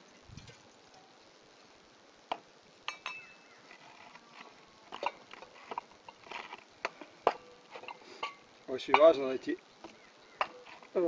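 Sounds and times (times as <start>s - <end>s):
metallic clinks of camping stove: 2.8s - 3.4s, 7.3s - 9.3s.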